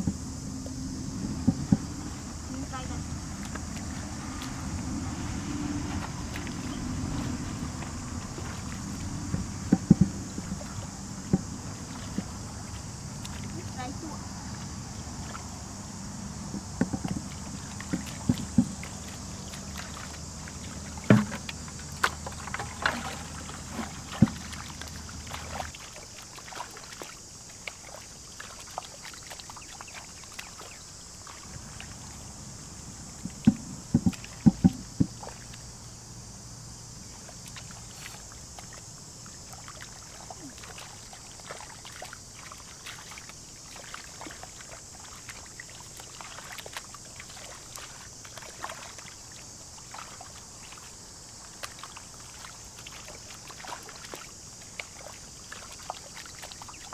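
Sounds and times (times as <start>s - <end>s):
steady high hiss: 0.0s - 17.8s
hands splashing in muddy water: 1.4s - 13.8s, 16.6s - 32.3s, 37.2s - 56.9s.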